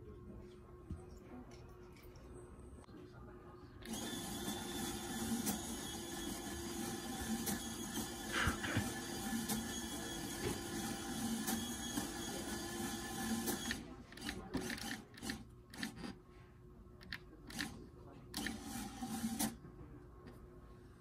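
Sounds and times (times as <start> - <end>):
electric lift motor whirring: 3.8 - 13.8.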